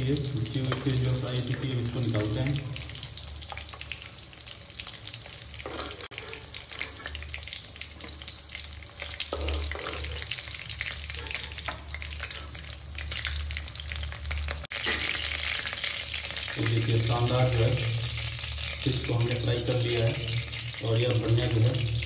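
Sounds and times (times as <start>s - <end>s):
fish sizzling in hot oil: 0.0s - 22.0s
steel spatula scraping pan: 5.6s - 7.2s, 9.3s - 10.3s.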